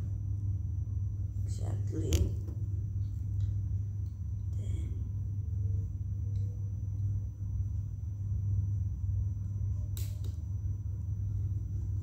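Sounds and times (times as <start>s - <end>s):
low background rumble: 0.0s - 12.0s.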